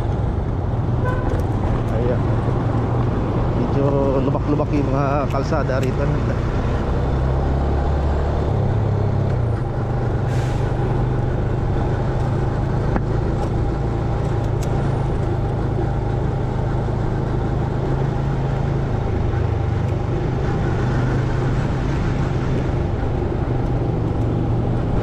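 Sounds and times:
road and wind noise: 0:00.0 - 0:25.0.

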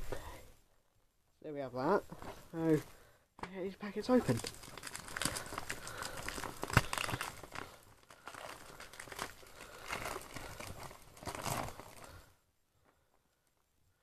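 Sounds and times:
foil packet crinkling and tearing: 0:03.8 - 0:12.3.

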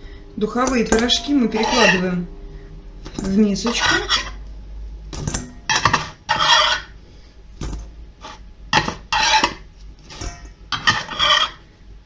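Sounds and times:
metal turner scraping baking tray: 0:00.6 - 0:02.2, 0:03.1 - 0:04.4, 0:05.7 - 0:06.9, 0:08.2 - 0:11.6.

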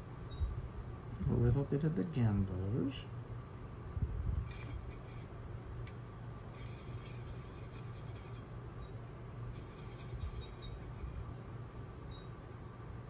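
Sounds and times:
low steady hum: 0:00.0 - 0:13.0
brush rubbing on plastic palette: 0:04.5 - 0:05.3, 0:06.6 - 0:08.4, 0:09.6 - 0:11.3.

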